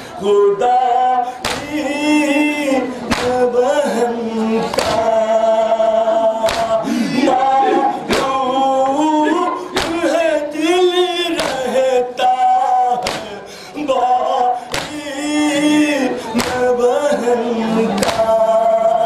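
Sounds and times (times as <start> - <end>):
hands slapping chests: 1.4 - 1.7, 3.1 - 3.4, 4.7 - 5.0, 6.4 - 6.8, 9.8 - 10.0, 11.4 - 11.6, 13.0 - 13.3, 14.7 - 15.0, 16.4 - 16.6, 18.0 - 18.3.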